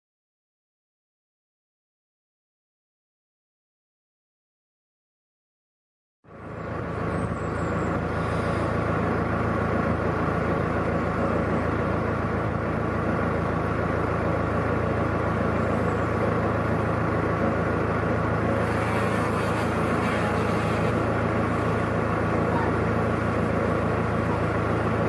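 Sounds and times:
boat engine running: 6.3 - 25.0.

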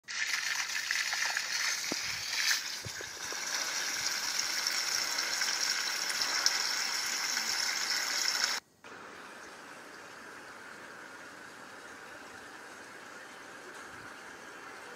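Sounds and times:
water running from garden hose: 0.0 - 8.6
faint steady hiss: 1.2 - 14.9.

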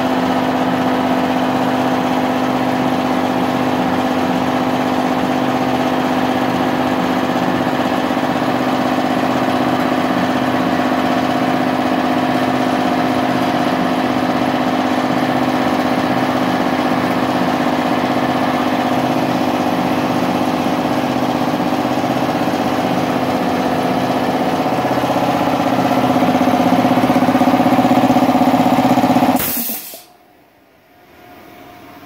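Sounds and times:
air compressor running: 0.0 - 30.2
short hiss burst: 29.4 - 30.1.

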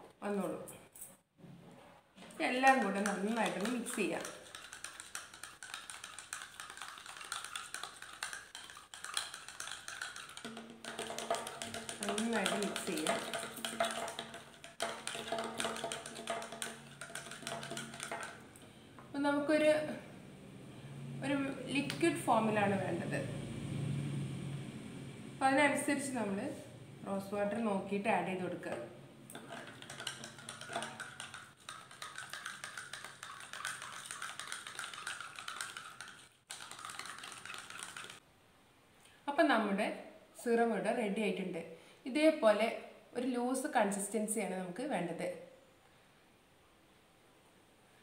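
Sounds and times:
spoon clinking in glass jar: 2.8 - 18.4, 29.3 - 35.8.

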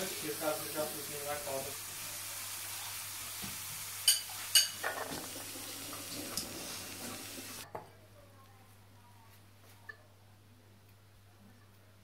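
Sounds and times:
hot oil sizzling: 0.0 - 7.6
kitchenware clinking: 4.0 - 6.8
clatter and stirring: 4.0 - 7.3.

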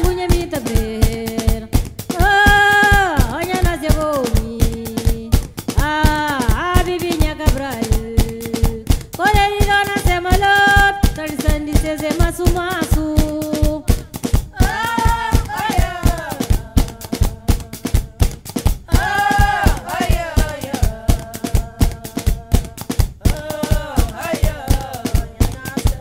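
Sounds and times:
cloth bundles beaten rhythmically: 0.0 - 26.0
women singing: 0.0 - 26.0.

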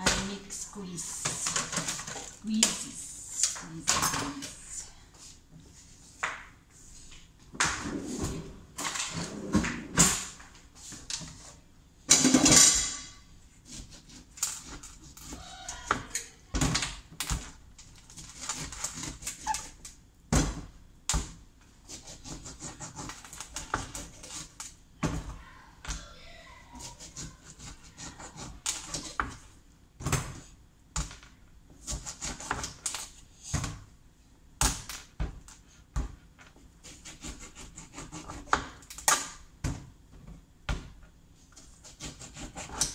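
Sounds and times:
kitchen things clattering at a sink: 12.1 - 13.2.

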